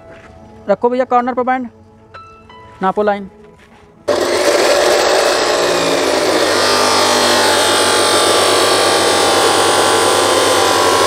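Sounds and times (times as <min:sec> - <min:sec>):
chop saw cutting plastic pipe: 0:04.1 - 0:11.0.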